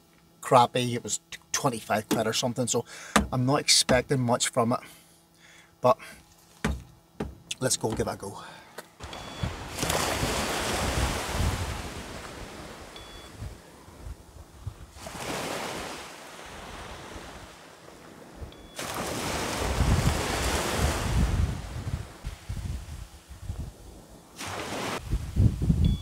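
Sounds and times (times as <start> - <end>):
small waves breaking on sand: 9.0 - 13.9, 14.9 - 25.4
wind buffeting microphone: 9.3 - 15.0, 19.6 - 24.2, 25.0 - 26.0.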